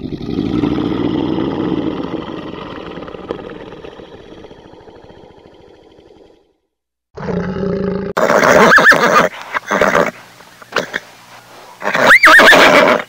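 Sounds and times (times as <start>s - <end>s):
tiger growling: 0.0s - 6.5s.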